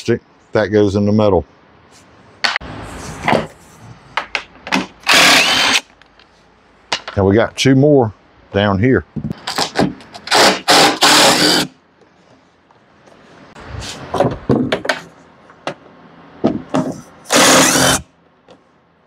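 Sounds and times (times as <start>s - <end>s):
impact driver bursts: 5.0s - 5.9s, 10.3s - 11.7s, 17.3s - 18.1s.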